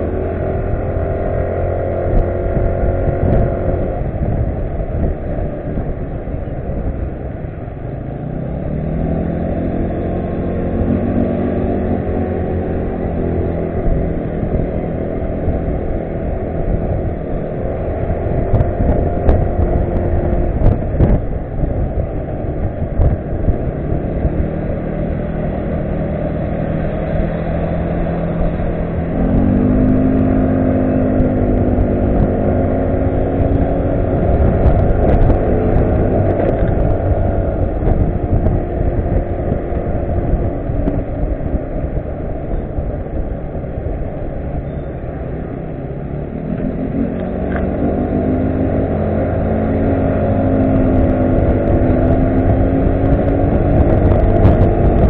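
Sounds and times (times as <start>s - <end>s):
wind and road rush: 0.0s - 55.0s
scooter engine running: 9.6s - 55.0s.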